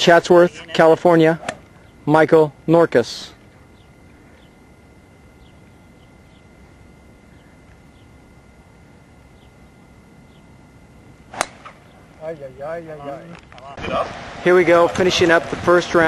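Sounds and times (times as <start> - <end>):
golf club striking ball: 11.3 - 11.8.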